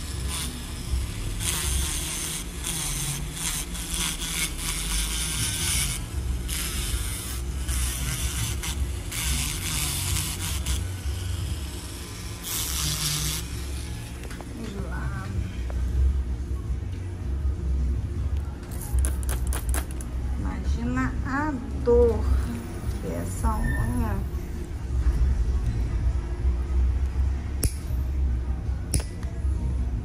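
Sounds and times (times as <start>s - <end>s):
burr grinding toenail: 0.0s - 11.5s, 12.4s - 14.4s.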